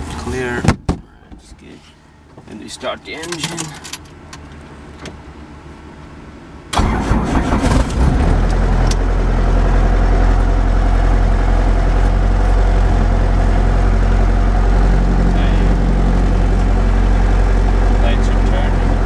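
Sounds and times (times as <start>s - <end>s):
helicopter piston engine starting: 6.8s - 8.0s.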